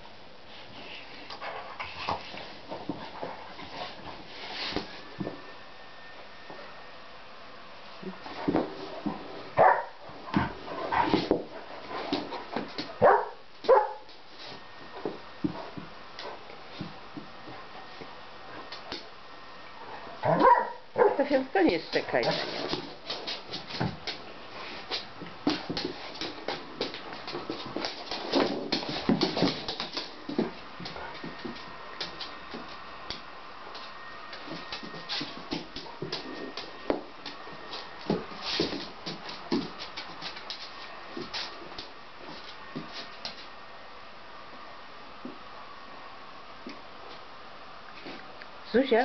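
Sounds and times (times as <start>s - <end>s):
dogs scuffling: 0.5s - 5.6s, 7.9s - 19.2s, 19.8s - 43.7s
paws clicking on floor: 1.2s - 5.4s, 8.0s - 19.1s, 19.9s - 43.5s
dogs barking and yipping: 9.6s - 9.9s, 13.0s - 14.0s, 20.2s - 21.2s.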